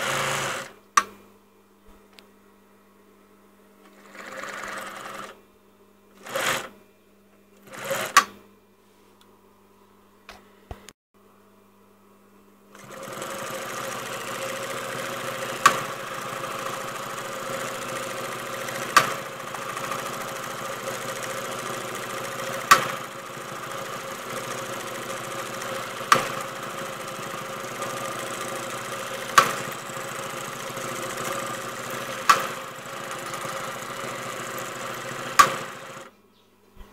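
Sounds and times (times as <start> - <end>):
sewing machine running: 0.0 - 0.8, 3.8 - 5.4, 6.2 - 6.7, 7.6 - 8.2, 12.8 - 36.1
sharp click: 32.3 - 32.5, 35.4 - 35.6.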